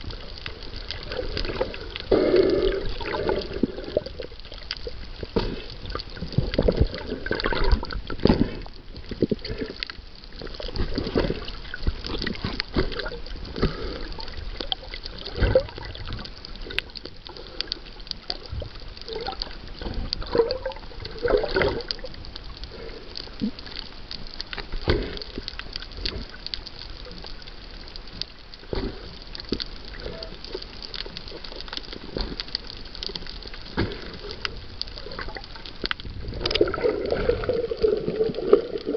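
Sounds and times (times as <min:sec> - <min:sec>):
water sloshing underwater: 0:00.0 - 0:38.9.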